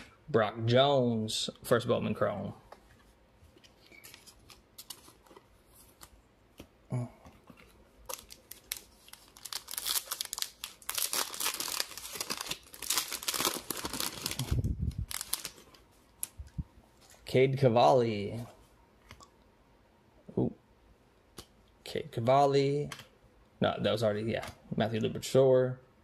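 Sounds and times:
wrapper tearing and crinkling: 0:08.0 - 0:16.4.

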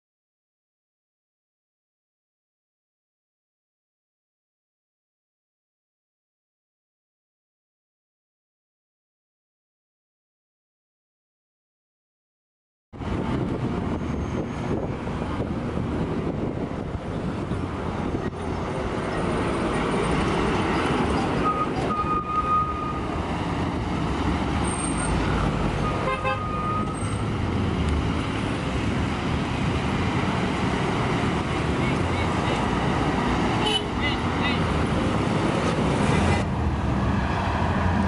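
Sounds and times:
road traffic rumbling: 0:13.0 - 0:38.0
vehicle horns beeping: 0:21.4 - 0:23.1, 0:25.8 - 0:27.2, 0:33.6 - 0:34.6.

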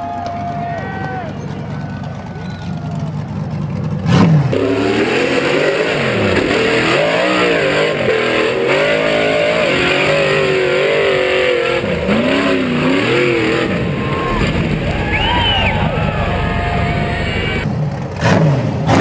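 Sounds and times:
engine revving hard: 0:04.0 - 0:19.0.

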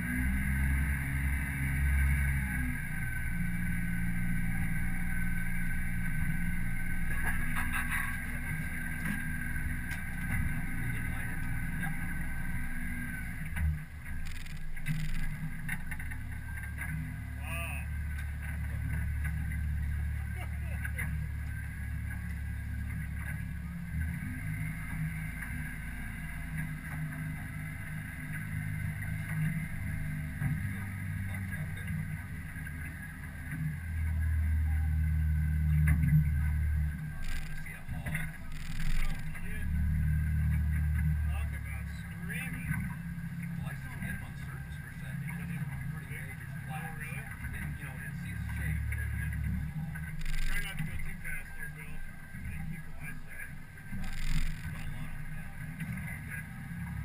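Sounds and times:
outboard motor running: 0:00.0 - 0:57.0
short clicks: 0:14.2 - 0:15.4, 0:37.2 - 0:39.4, 0:50.2 - 0:51.0, 0:53.9 - 0:55.0.

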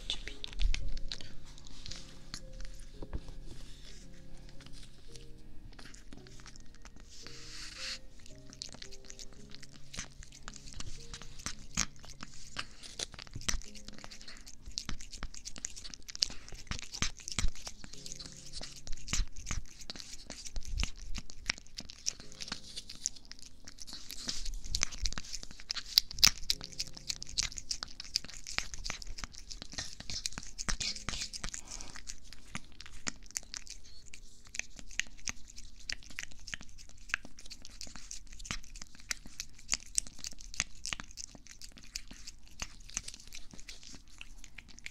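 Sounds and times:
cat licking: 0:00.0 - 0:44.9.

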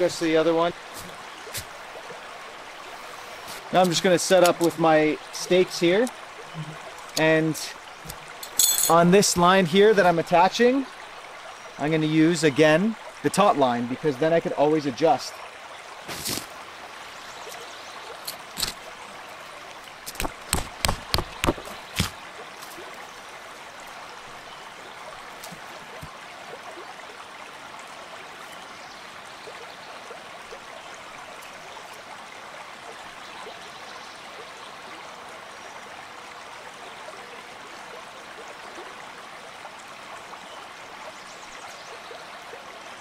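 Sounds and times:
steady rushing stream: 0:00.0 - 0:43.0
tent stake being knocked in: 0:16.1 - 0:16.5, 0:20.0 - 0:22.2.

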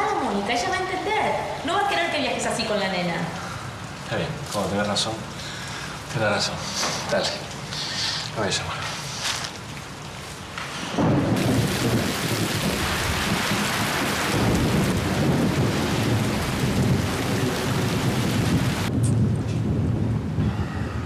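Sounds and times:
heavy rain pouring: 0:00.0 - 0:21.0
thunder rumbling: 0:10.9 - 0:21.0.

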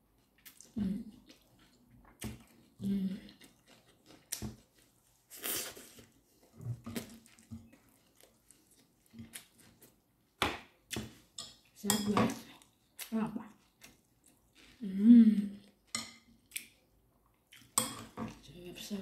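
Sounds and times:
chewing: 0:00.2 - 0:10.0, 0:12.5 - 0:14.8.

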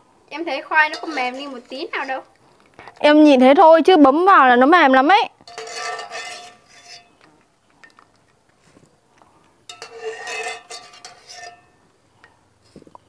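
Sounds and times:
wire skimmer scraping metal pot: 0:00.6 - 0:03.1, 0:05.4 - 0:08.1, 0:09.7 - 0:11.9.

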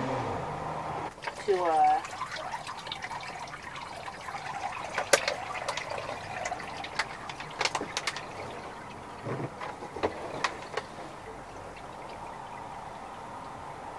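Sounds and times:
water splashes: 0:01.1 - 0:13.9
water sprinkling and trickling: 0:01.1 - 0:13.9.

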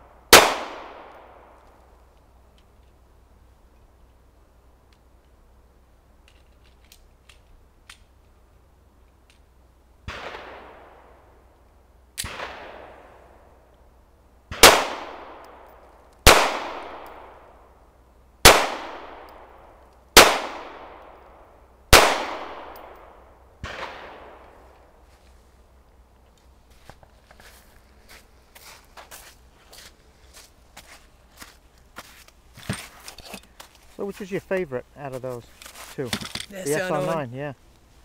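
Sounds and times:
pistol shots with echo: 0:00.3 - 0:01.5, 0:14.5 - 0:15.6, 0:16.3 - 0:17.4, 0:18.4 - 0:19.5, 0:20.2 - 0:21.0, 0:21.9 - 0:24.4.

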